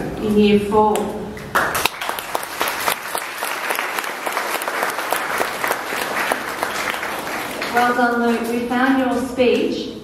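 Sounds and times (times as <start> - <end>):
audience applauding: 1.5 - 8.3.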